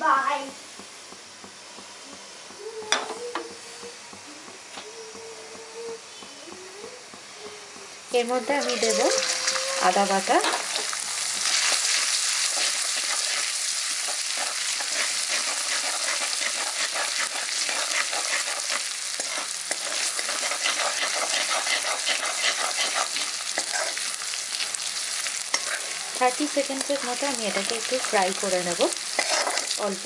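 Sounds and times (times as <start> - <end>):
paste sizzling in hot oil: 8.1 - 30.0.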